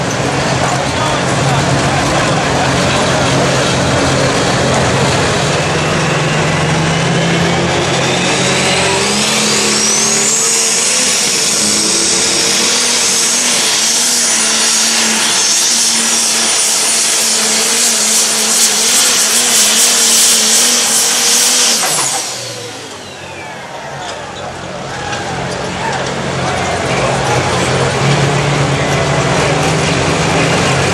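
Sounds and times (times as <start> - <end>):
diesel engine at full power: 0.0 - 30.9
high turbo whine: 0.0 - 30.9.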